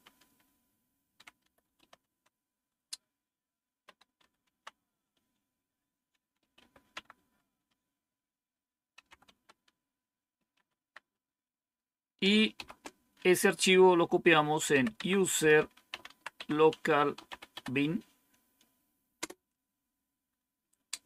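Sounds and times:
computer keyboard keystrokes: 0:01.2 - 0:03.1, 0:03.8 - 0:05.4, 0:06.2 - 0:07.8, 0:09.0 - 0:09.8, 0:10.4 - 0:11.1, 0:12.5 - 0:13.0, 0:14.8 - 0:18.0, 0:19.2 - 0:19.4.

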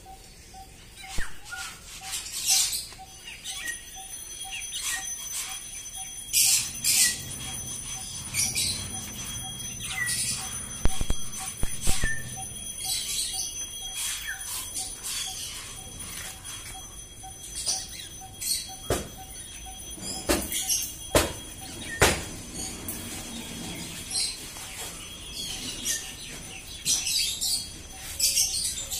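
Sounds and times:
small birds chirping: 0:00.0 - 0:28.9
sharp knocks: 0:18.9 - 0:19.2, 0:20.2 - 0:21.4, 0:22.0 - 0:22.3.

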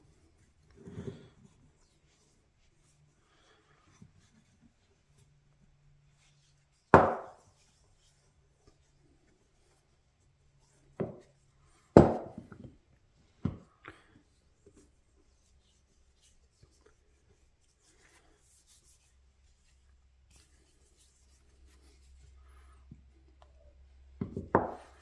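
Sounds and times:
wooden mallet knocking on workbench: 0:07.0 - 0:07.4, 0:24.2 - 0:24.8.

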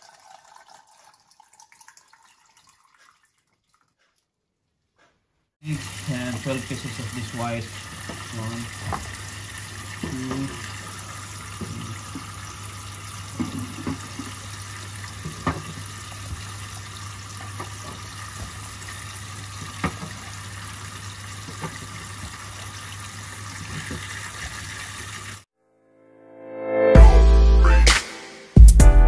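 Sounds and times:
tap water running into sink: 0:05.6 - 0:25.5.

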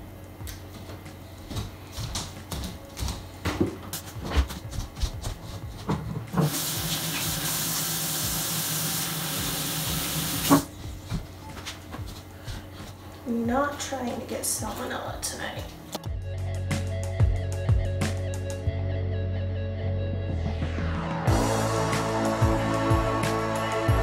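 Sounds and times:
faucet shut off knock: 0:06.4 - 0:10.7
faucet water hissing into sink: 0:06.4 - 0:10.7.

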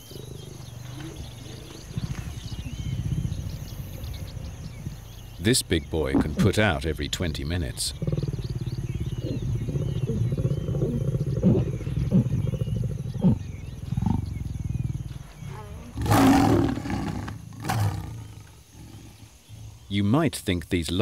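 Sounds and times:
lion growling: 0:00.0 - 0:06.7, 0:07.8 - 0:19.8
lion snarling: 0:07.9 - 0:19.8.

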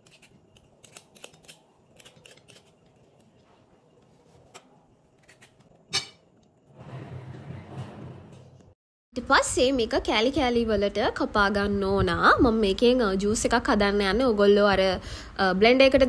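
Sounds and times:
beetroot handling scrapes and clicks: 0:00.0 - 0:03.3.

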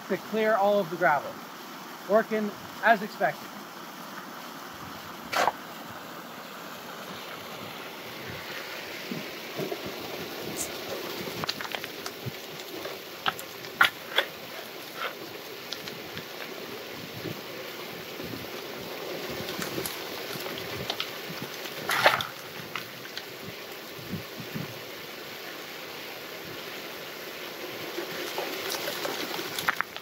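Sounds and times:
water rushing through metal hopper: 0:07.1 - 0:23.9, 0:27.4 - 0:30.0.

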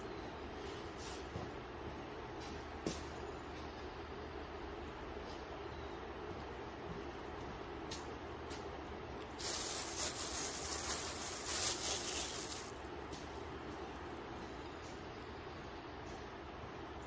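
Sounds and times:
steady low hum: 0:00.0 - 0:17.0
spray hissing: 0:09.4 - 0:12.7.

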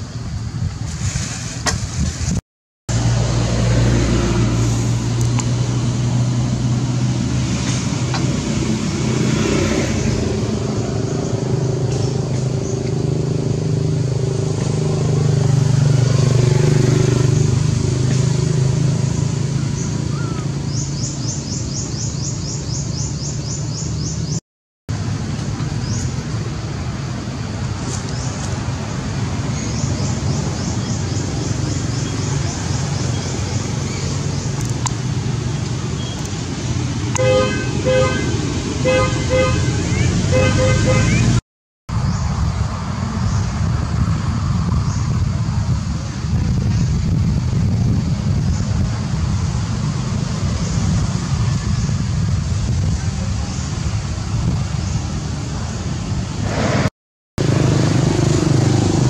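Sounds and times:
vehicle engine humming: 0:00.0 - 0:59.0.

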